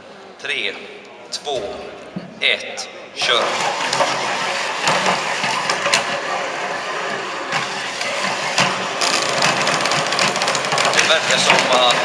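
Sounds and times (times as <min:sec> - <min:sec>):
sharp clicks and knocks: 0:03.2 - 0:12.0
small electric motors whining: 0:03.2 - 0:12.0.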